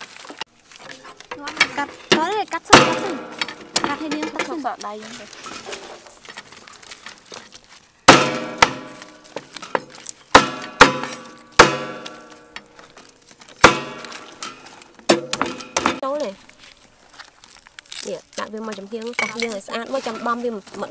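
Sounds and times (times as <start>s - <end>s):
cleaver chopping on wooden block: 1.5s - 4.3s, 8.1s - 12.4s, 13.6s - 16.0s.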